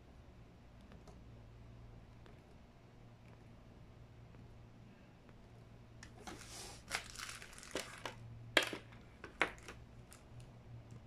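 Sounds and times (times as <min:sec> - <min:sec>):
faint electrical hum: 0:00.0 - 0:11.0
plastic bag crinkling: 0:06.2 - 0:10.4
plastic parts knocking on table: 0:07.6 - 0:09.8.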